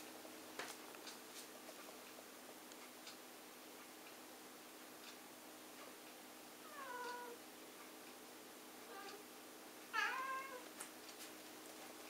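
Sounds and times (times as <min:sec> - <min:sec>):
cat meowing: 0:06.7 - 0:07.4, 0:09.9 - 0:10.6.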